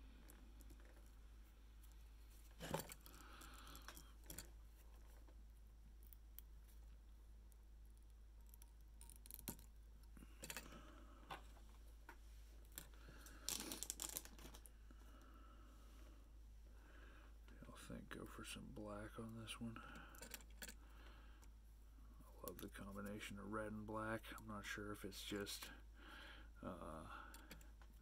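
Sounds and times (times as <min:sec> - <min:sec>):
clicks and rustles of tools: 0:01.8 - 0:05.4, 0:08.0 - 0:14.7, 0:19.8 - 0:20.8, 0:27.2 - 0:28.0.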